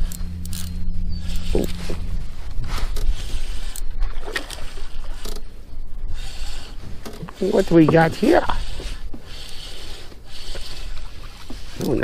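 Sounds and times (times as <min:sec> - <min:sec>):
spinning reel cranking: 0:00.0 - 0:01.8, 0:02.9 - 0:03.9, 0:06.1 - 0:12.0
steady low hum: 0:00.0 - 0:12.0
water lapping against hull: 0:00.0 - 0:12.0
wind on microphone: 0:00.0 - 0:12.0.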